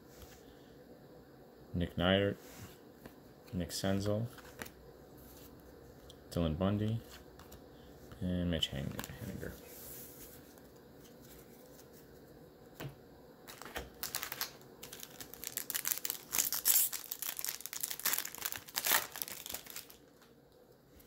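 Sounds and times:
wrapper crinkling and tearing: 0:13.5 - 0:20.3.

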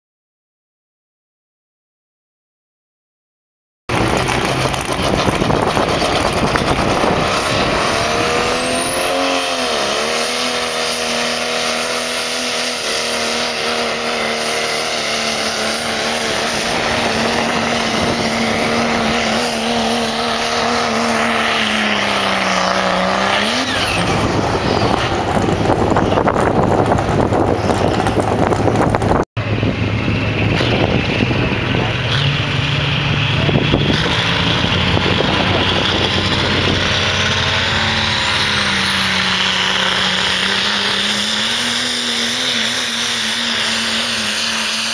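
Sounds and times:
diesel truck engine at full throttle: 0:03.9 - 0:44.9
rumbling engine: 0:03.9 - 0:44.9.

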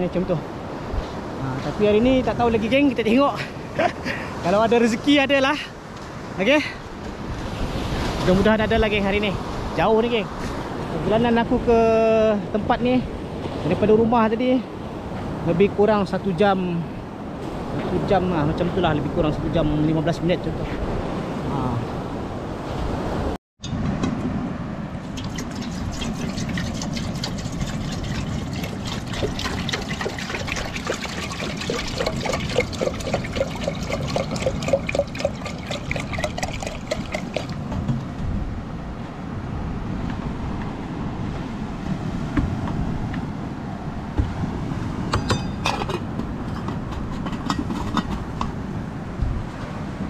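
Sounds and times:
water pouring into kettle: 0:25.2 - 0:37.6
kettle lid metallic clinks: 0:45.1 - 0:48.2.

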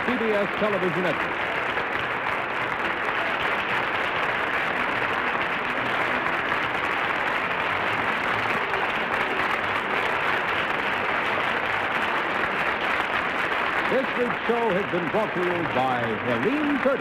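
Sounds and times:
studio audience applauding: 0:00.0 - 0:17.0.

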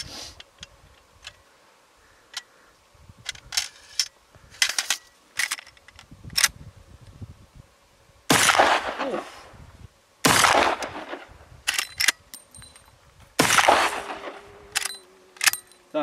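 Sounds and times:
rifle shot with echo: 0:08.3 - 0:09.3, 0:10.2 - 0:11.3, 0:13.4 - 0:14.4
metallic rifle clicks: 0:11.6 - 0:13.0, 0:14.7 - 0:15.8.

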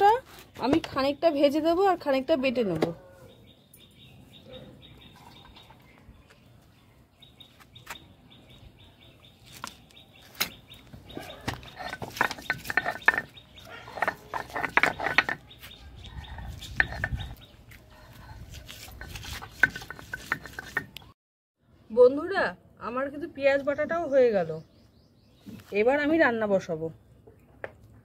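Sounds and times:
stone roller grinding onions: 0:18.6 - 0:21.0.

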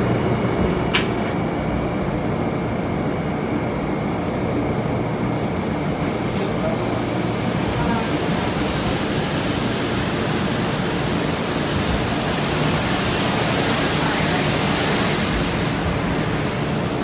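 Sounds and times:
train wash water spray and brushes: 0:03.9 - 0:17.0.

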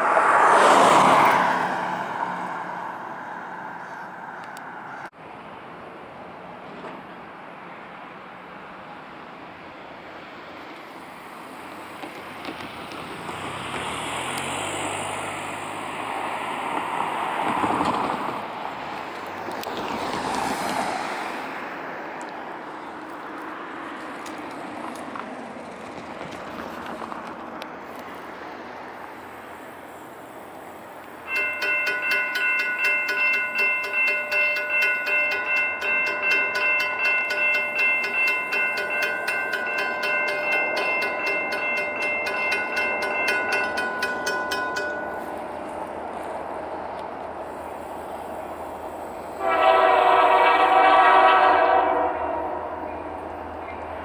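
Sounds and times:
railroad crossing bell ringing: 0:31.1 - 0:48.0, 0:48.7 - 0:53.7.

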